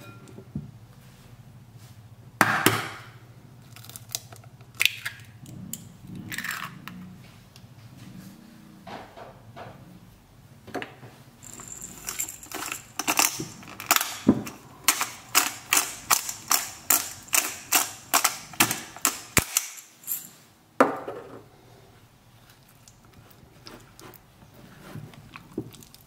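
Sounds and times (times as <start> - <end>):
pepper mill grinding clicks: 11.4 - 20.2.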